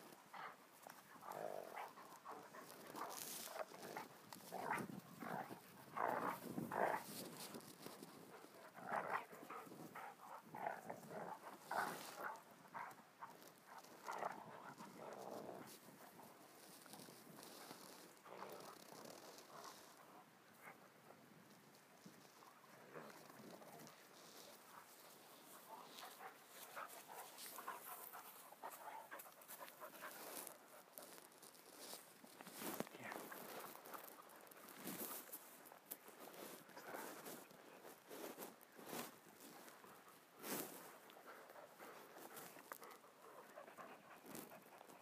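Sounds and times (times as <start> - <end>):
dogs growling and grunting: 8.6 - 15.8
dog panting: 25.5 - 31.0, 41.2 - 45.0.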